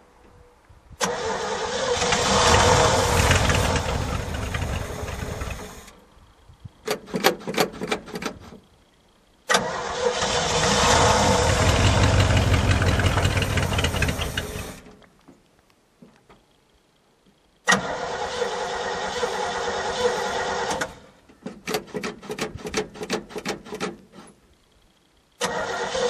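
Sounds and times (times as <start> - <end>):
truck engine sputtering and running: 1.7 - 5.9, 10.2 - 14.9
engine pops: 2.0 - 5.9, 10.8 - 14.9.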